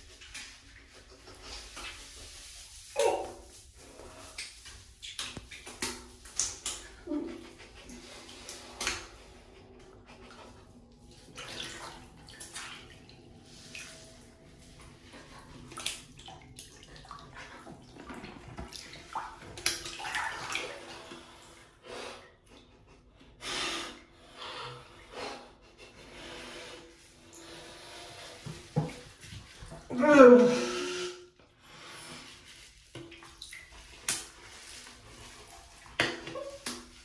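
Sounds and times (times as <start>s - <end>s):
wet squelching: 0.0s - 21.6s, 32.2s - 37.0s.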